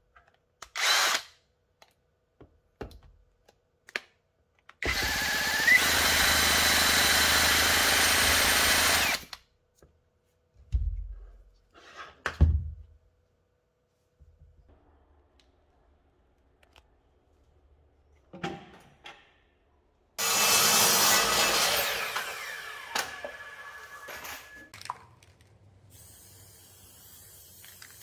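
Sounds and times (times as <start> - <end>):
cordless drill spinning engine: 0.8 - 1.2, 4.8 - 9.3, 20.2 - 24.2.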